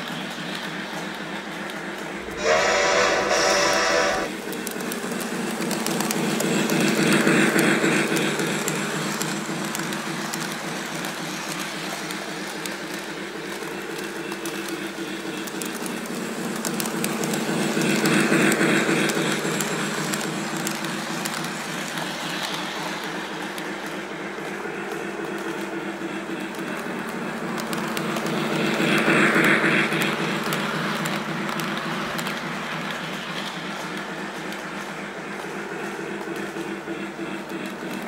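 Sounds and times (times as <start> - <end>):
toy train wheels clicking: 0.0 - 38.0
toy train motor whirring: 0.5 - 25.8.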